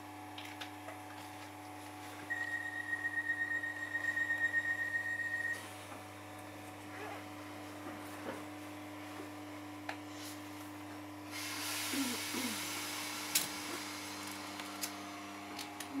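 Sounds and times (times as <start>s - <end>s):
air hissing: 11.3s - 13.8s.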